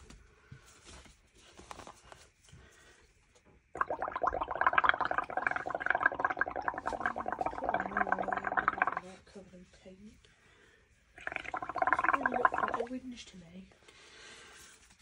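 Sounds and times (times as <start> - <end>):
air bubbling through paint: 3.8 - 9.2, 11.2 - 13.0.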